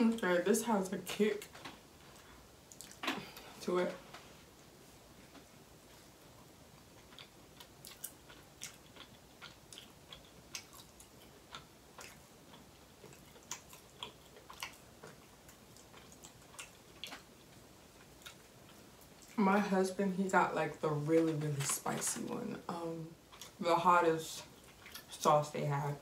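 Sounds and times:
chewing mouth clicks: 0:07.0 - 0:17.3.

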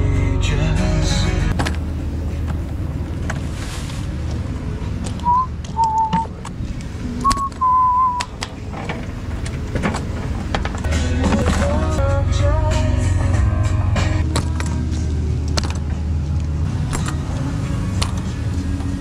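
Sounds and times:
person whistling: 0:05.2 - 0:06.3, 0:07.2 - 0:08.3.

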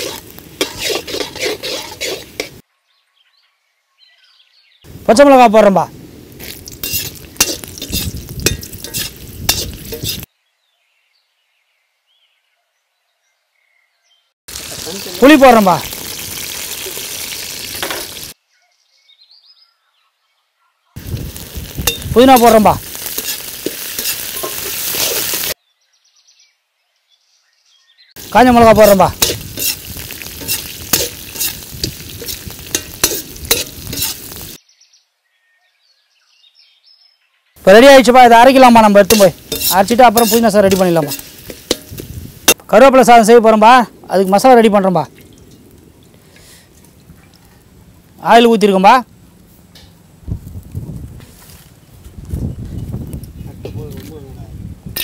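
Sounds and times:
chillies sizzling in hot oil: 0:00.0 - 0:02.6, 0:05.2 - 0:10.3, 0:14.5 - 0:18.4, 0:21.0 - 0:25.6, 0:28.2 - 0:34.6, 0:37.6 - 0:48.9
metal ladle scraping and stirring: 0:00.0 - 0:02.6, 0:06.4 - 0:10.3, 0:21.3 - 0:25.5, 0:28.8 - 0:34.6, 0:39.0 - 0:42.6
metal spoon clinking against pan: 0:06.8 - 0:10.3, 0:21.8 - 0:25.4, 0:29.2 - 0:34.3, 0:39.1 - 0:42.0.

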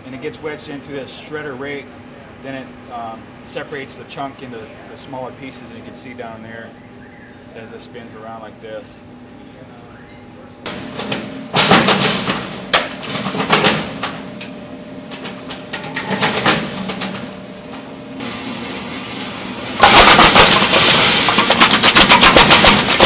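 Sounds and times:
foam shredder running: 0:10.7 - 0:23.0.

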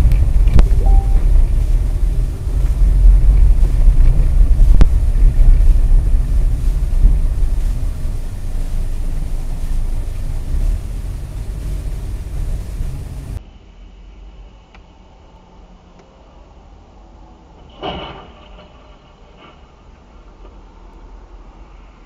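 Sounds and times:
wind noise: 0:00.0 - 0:13.4
car engine and tyres rumbling: 0:00.0 - 0:13.6.

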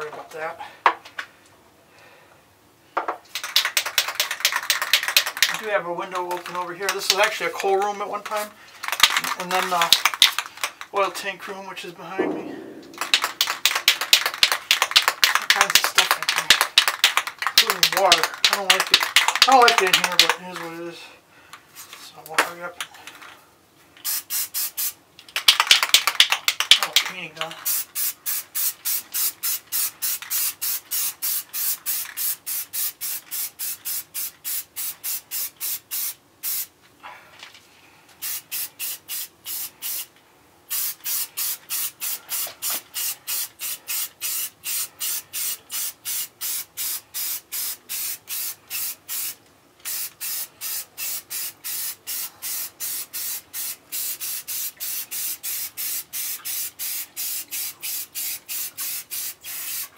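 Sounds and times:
spray paint bursts: 0:03.3 - 0:05.6, 0:08.3 - 0:10.7, 0:12.2 - 0:20.4, 0:24.0 - 0:36.7, 0:38.2 - 0:40.1, 0:40.7 - 0:59.9.

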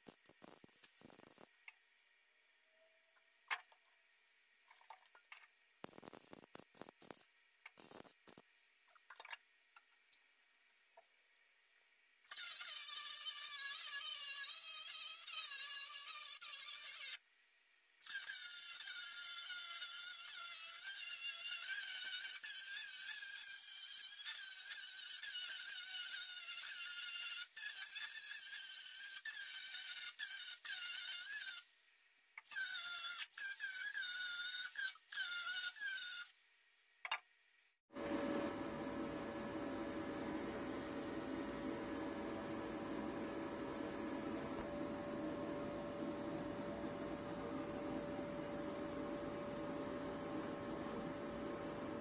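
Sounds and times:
angle grinder whining on steel: 0:37.9 - 0:52.0.

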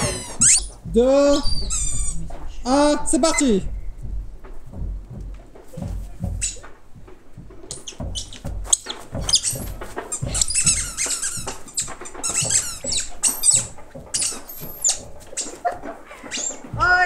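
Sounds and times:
children squealing and shrieking: 0:00.0 - 0:00.8.

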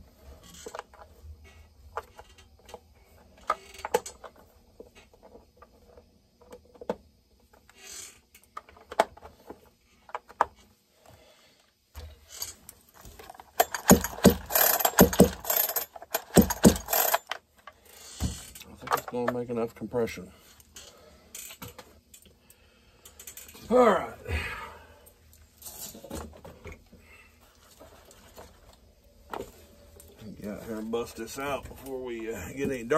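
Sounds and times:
chainsaw recoil starter pulls: 0:13.1 - 0:17.4.

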